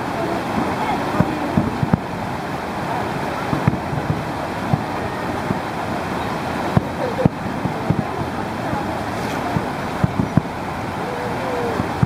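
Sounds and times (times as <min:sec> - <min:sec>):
crowd voices: 0:00.0 - 0:12.0
wind noise on microphone: 0:00.0 - 0:12.0
distant firework shells bursting: 0:03.5 - 0:11.0.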